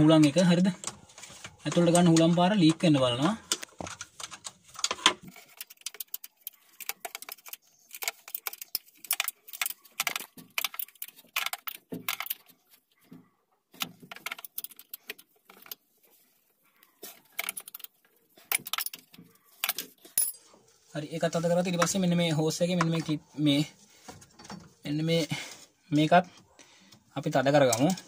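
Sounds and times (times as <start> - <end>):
metal spanner clinking on nuts: 18.5 - 20.4.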